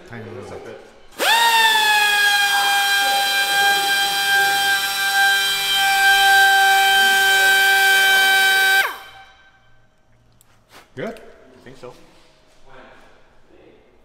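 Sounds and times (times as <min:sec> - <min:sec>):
die grinder high whine: 0:01.2 - 0:09.3.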